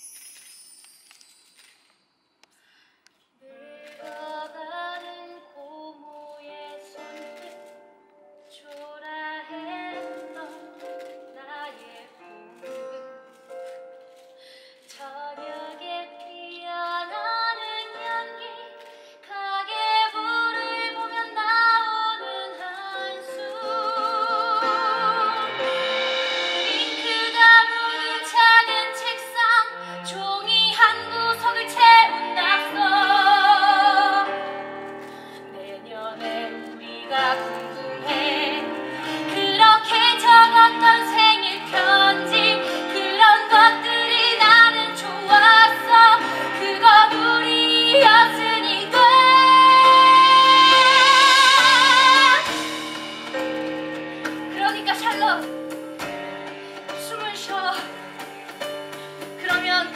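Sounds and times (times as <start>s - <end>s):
instrumental accompaniment: 3.4s - 59.9s
woman singing a ballad: 3.5s - 7.8s, 8.5s - 12.6s, 14.9s - 53.1s, 54.5s - 55.6s, 56.5s - 58.2s, 59.0s - 59.9s.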